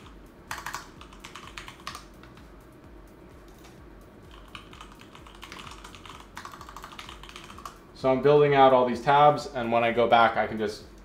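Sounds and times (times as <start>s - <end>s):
computer keyboard typing: 0.0s - 2.1s, 4.3s - 7.8s.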